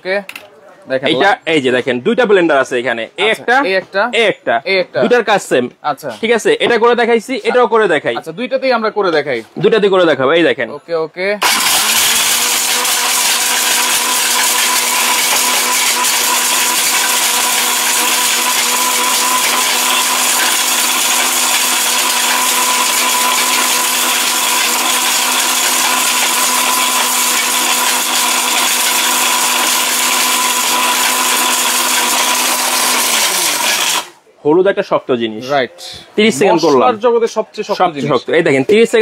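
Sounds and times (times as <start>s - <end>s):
blender grinding spice: 11.4s - 34.2s.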